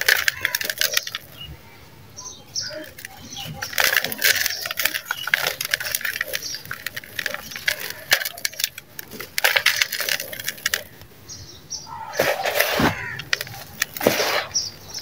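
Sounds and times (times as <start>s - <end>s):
cement block crumbling in hands: 0.0s - 1.4s, 2.8s - 11.0s, 12.2s - 14.6s.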